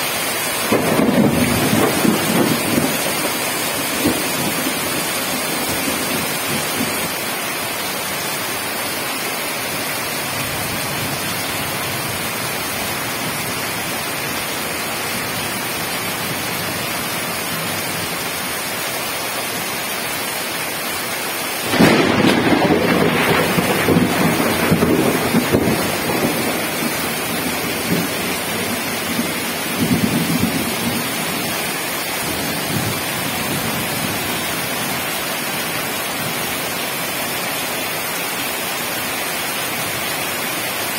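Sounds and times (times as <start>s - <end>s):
heavy rain: 0.0s - 40.9s
thunder clap and rumble: 0.6s - 7.2s, 21.6s - 31.6s.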